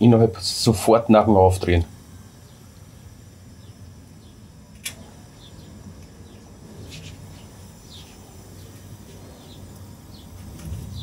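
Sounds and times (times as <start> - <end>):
gas stove burning: 0.0 - 11.0
sharp click: 4.7 - 5.1.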